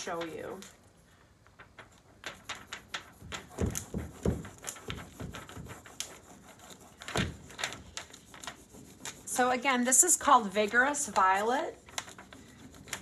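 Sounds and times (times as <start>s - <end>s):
scratchy rubbing strokes: 1.7s - 13.0s.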